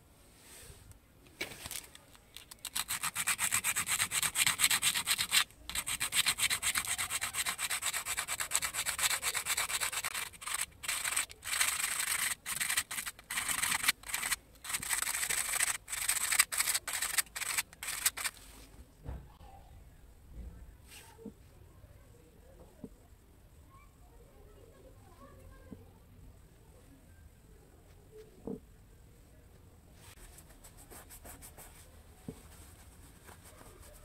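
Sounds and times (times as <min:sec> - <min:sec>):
sandpaper rasping on metal: 0:02.6 - 0:18.4.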